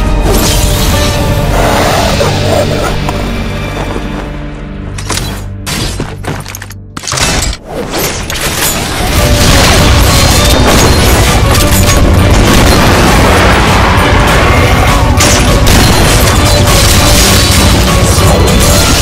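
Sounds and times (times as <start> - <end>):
loud rock soundtrack: 8.9 - 19.0
booming gunshots: 9.0 - 19.0.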